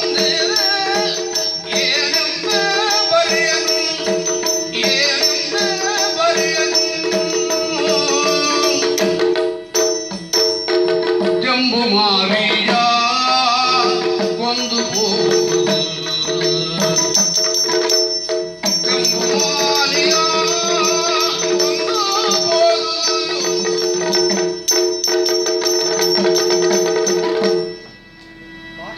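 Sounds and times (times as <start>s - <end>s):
small metal cymbals clinking: 0.0s - 11.4s, 13.7s - 28.9s
rhythmic percussion: 0.0s - 28.9s.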